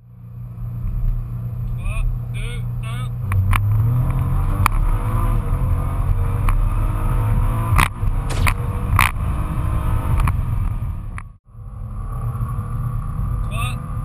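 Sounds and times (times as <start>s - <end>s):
car engine accelerating hard: 0.0s - 14.0s
sharp exhaust cracks: 7.8s - 9.3s.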